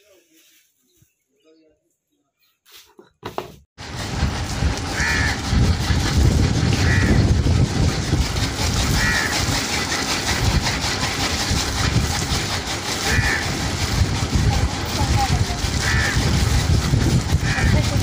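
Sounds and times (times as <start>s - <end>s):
water spraying from garden hose: 3.8s - 18.0s
crow cawing: 5.0s - 5.4s, 6.8s - 7.2s, 9.0s - 9.4s, 13.0s - 13.6s, 15.8s - 16.3s, 17.4s - 17.8s.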